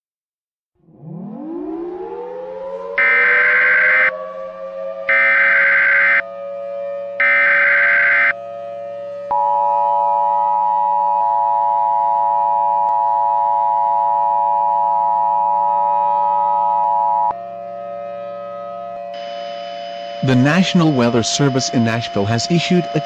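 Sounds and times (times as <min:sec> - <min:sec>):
two-tone alert signal: 0:19.2 - 0:23.0.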